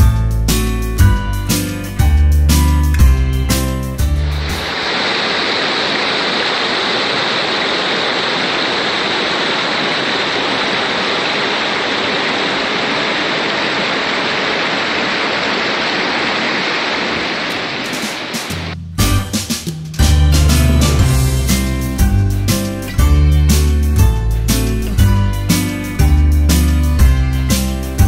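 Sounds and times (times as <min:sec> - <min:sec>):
water rushing over rocks: 0:04.4 - 0:18.7.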